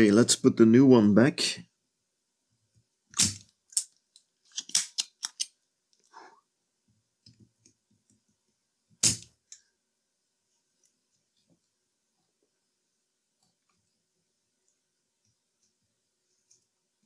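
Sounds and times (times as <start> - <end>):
small tools clicking and tapping: 3.7 - 5.6.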